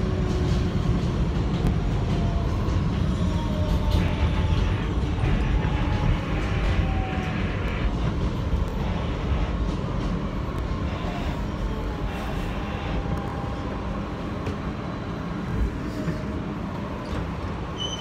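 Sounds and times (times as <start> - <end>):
train wheels rumbling on rail: 0.0 - 18.0
faint high squeal: 17.7 - 18.0.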